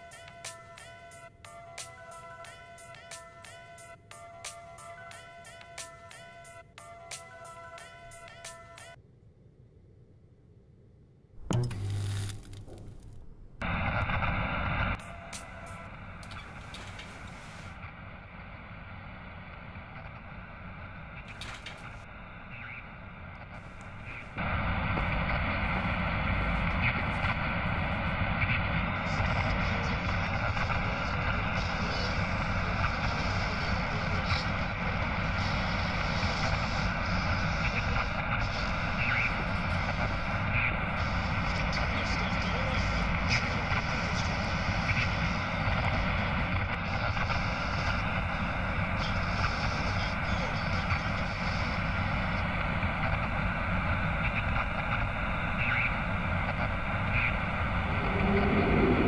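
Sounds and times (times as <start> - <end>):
low rumbling drone: 11.2 - 16.7, 51.6 - 59.0
faint brief blips: 11.4 - 13.6
hiss: 13.7 - 17.8, 23.6 - 59.0.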